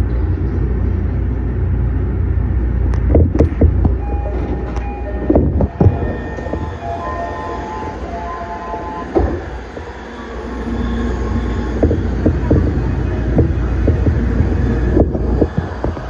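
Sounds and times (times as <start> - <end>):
train rumbling past: 0.0 - 16.0
faint wheel squeal: 9.6 - 12.5
wheels clacking over rail joints: 10.6 - 16.0.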